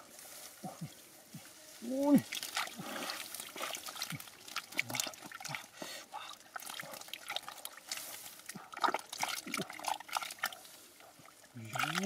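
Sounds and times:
mud splash: 0:01.8 - 0:12.0
hands squelching in mud: 0:02.0 - 0:10.7.

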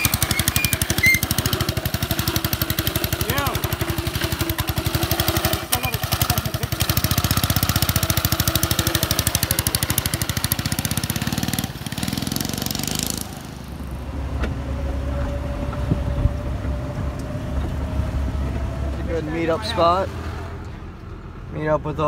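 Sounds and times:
small motorbike engine running: 0:00.0 - 0:13.7
low engine hum: 0:13.2 - 0:22.0.

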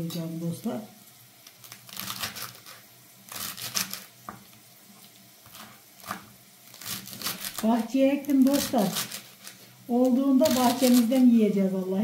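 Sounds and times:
knife chopping stems: 0:05.4 - 0:09.5, 0:10.1 - 0:11.2.

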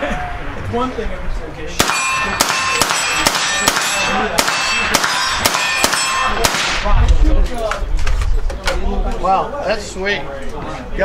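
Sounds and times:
suppressed rifle shots: 0:01.8 - 0:06.9.

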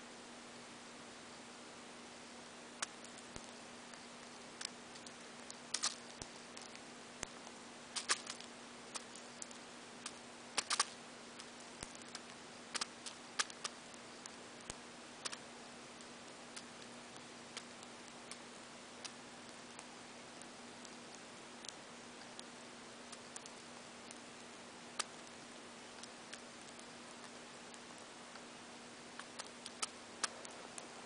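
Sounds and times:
bird beak cracking seeds: 0:04.6 - 0:06.8, 0:08.0 - 0:13.8, 0:29.2 - 0:30.4.

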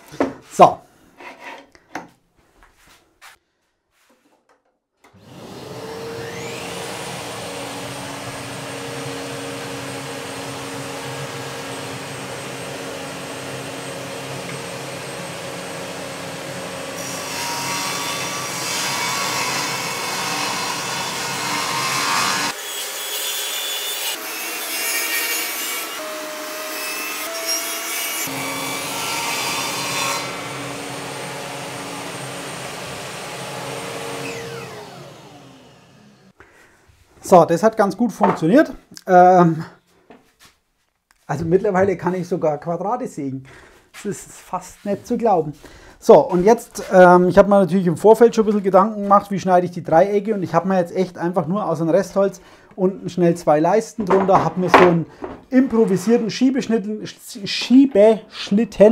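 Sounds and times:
table saw motor whine: 0:05.1 - 0:24.6, 0:25.4 - 0:36.4
saw blade cutting wooden boards: 0:05.1 - 0:36.3, 0:54.0 - 0:56.5.

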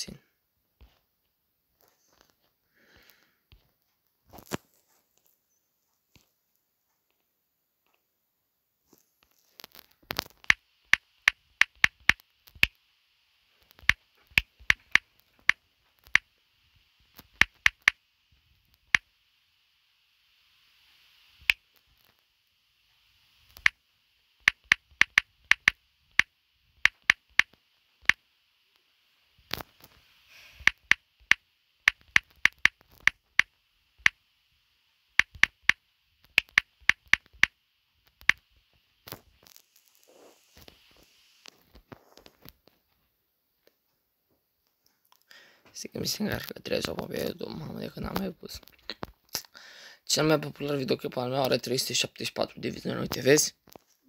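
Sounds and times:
taps on touchscreen keyboard: 0:10.4 - 0:12.7, 0:17.4 - 0:18.0, 0:24.5 - 0:28.2, 0:30.6 - 0:34.2, 0:35.2 - 0:37.5.

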